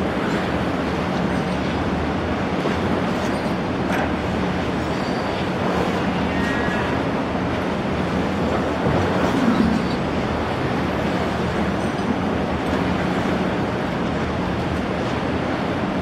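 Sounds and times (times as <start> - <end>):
rush of churning water: 0.0 - 16.0.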